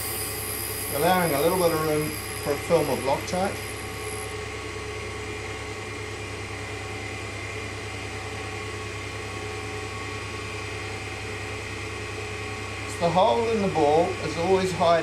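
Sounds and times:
grinder motor humming: 0.0 - 4.7.

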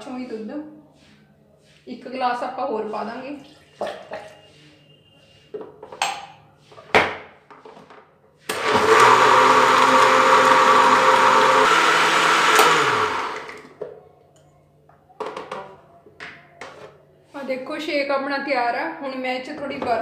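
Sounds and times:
blender motor running: 8.5 - 13.7.

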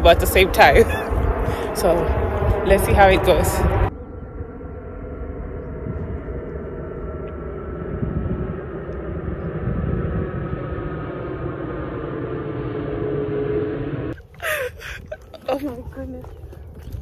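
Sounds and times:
held tones drifting in pitch: 0.0 - 14.2
distant engine drone: 0.0 - 17.0
person laughing: 0.7 - 1.2, 14.2 - 15.9.

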